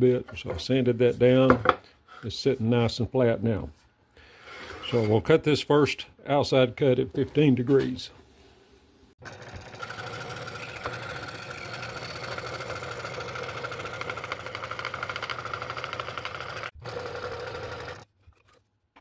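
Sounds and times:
scroll saw cutting wood: 9.2 - 18.1.

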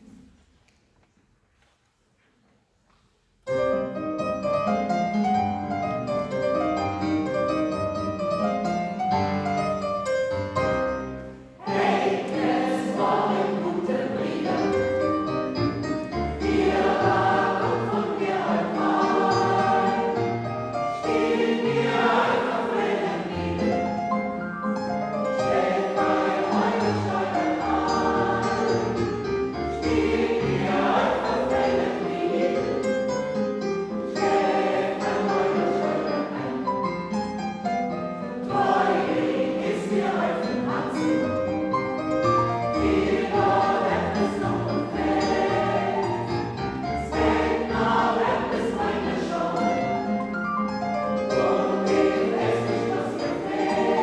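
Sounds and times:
choir singing: 10.4 - 24.4, 25.1 - 37.3, 38.2 - 54.0.

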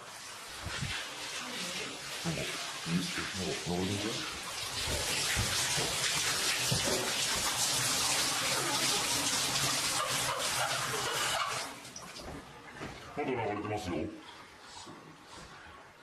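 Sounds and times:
water running from bathtub tap: 0.0 - 12.4.

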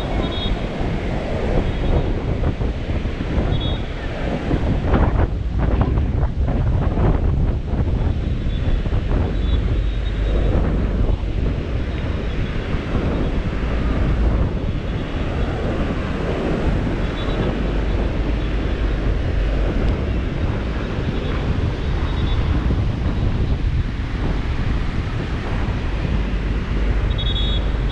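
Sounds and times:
ocean surf breaking: 0.0 - 27.9
wind buffeting microphone: 0.0 - 27.9.

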